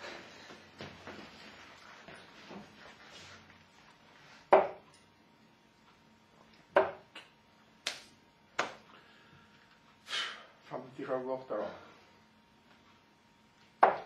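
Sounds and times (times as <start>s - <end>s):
darts thudding into dartboard: 4.5s - 4.8s, 6.8s - 7.1s, 13.8s - 14.0s.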